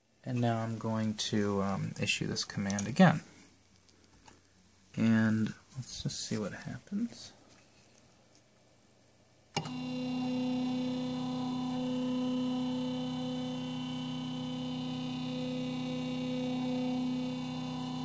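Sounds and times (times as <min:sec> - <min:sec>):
stepper motor whine: 0:09.6 - 0:18.0.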